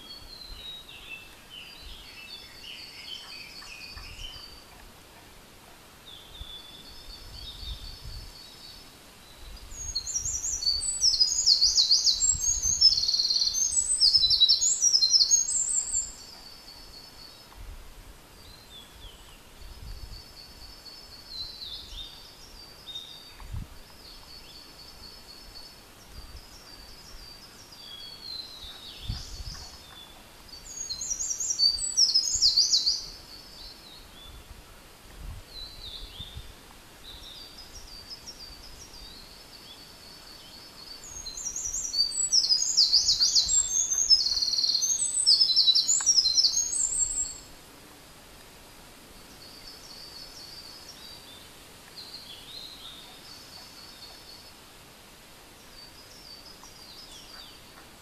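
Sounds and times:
wren singing trills: 6.1s - 17.5s, 18.4s - 34.5s, 35.5s - 47.5s.

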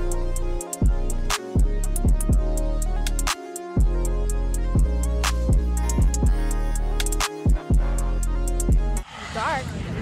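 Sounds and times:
sliding deep bass: 0.0s - 9.0s
drum beat: 4.8s - 9.0s.

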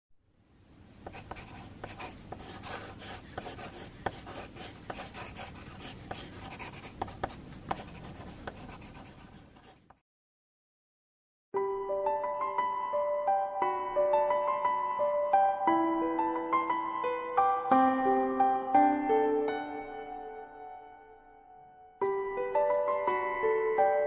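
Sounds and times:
pencil sketching on paper: 1.1s - 10.0s.

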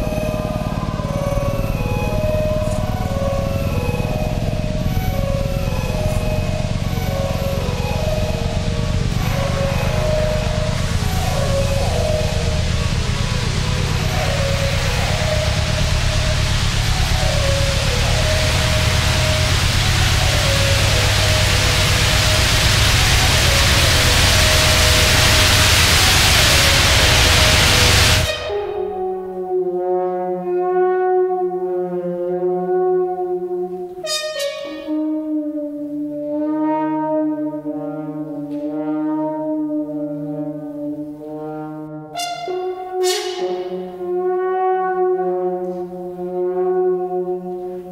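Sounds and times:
loud electronic noise: 0.0s - 29.3s
low held tone: 0.0s - 30.1s, 36.6s - 44.6s
french horn sustained notes: 0.0s - 47.9s.

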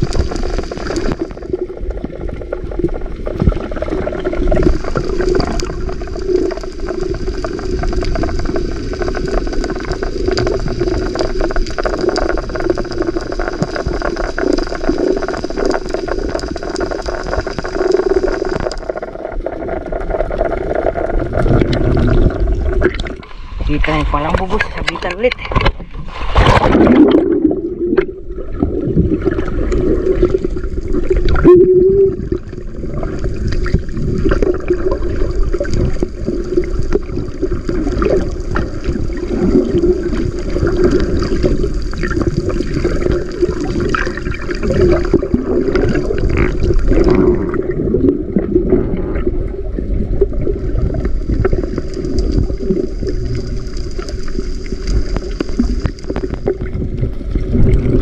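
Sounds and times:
low underwater drone: 0.0s - 58.0s
muffled underwater gurgling: 0.0s - 58.0s
splash into water: 25.4s - 27.6s.

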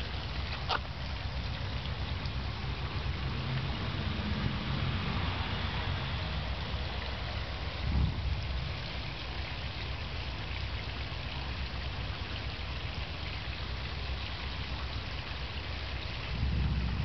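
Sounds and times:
low rumble: 0.0s - 10.0s, 16.2s - 17.0s
water trickling and splashing: 0.0s - 17.0s.

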